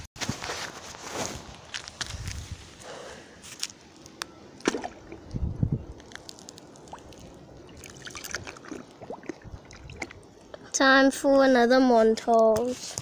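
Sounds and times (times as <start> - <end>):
water sloshing and bubbling: 4.6 - 10.8.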